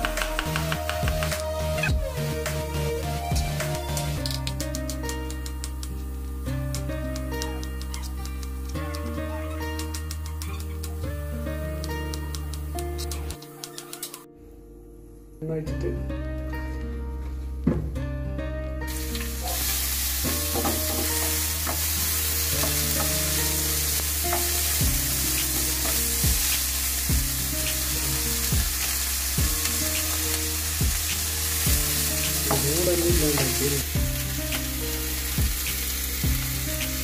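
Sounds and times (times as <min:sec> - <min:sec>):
onions sizzling in hot oil: 0:18.9 - 0:37.0.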